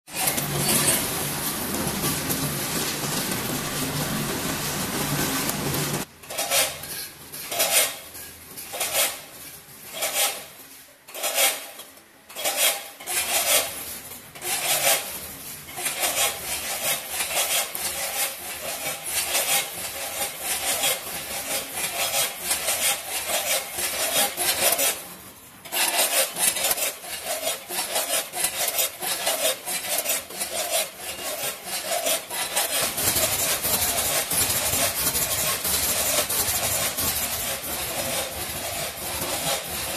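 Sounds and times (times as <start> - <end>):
chips rattling through metal buckets: 0.1 - 6.0
machine noise: 0.1 - 6.1.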